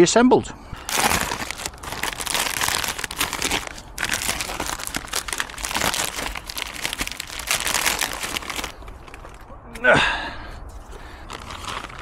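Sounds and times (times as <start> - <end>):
plastic packaging crinkling: 0.8 - 9.5, 11.1 - 12.0.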